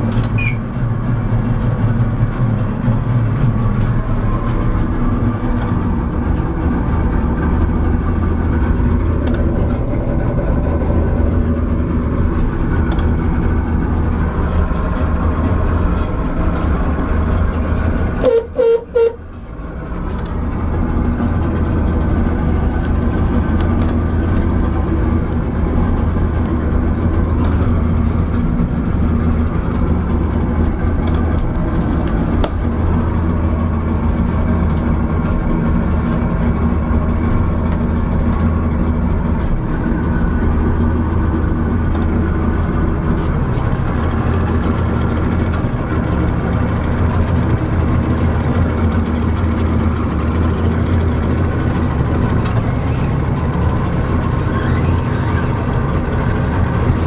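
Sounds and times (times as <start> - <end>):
outboard motor idling: 0.0 - 57.0
short toots: 18.2 - 19.2.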